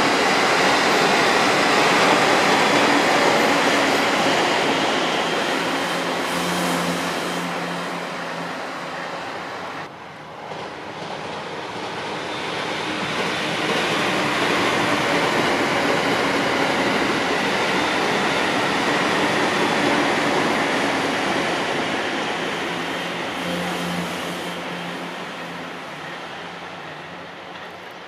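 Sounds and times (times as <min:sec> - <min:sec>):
train wheels rumbling on rails: 0:00.0 - 0:28.0.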